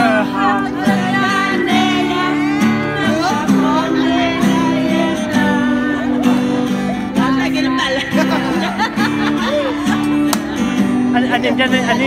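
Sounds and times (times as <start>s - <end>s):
woman singing into microphone: 0.0s - 8.7s
bass: 0.0s - 12.0s
guitar: 0.0s - 12.0s.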